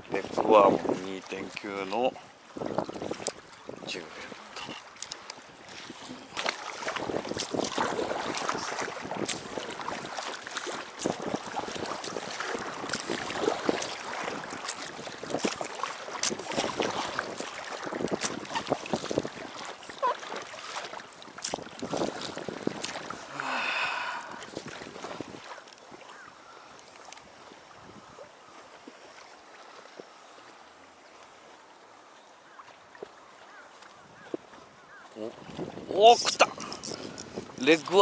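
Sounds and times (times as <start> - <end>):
water splashing against raft: 0.0 - 38.0.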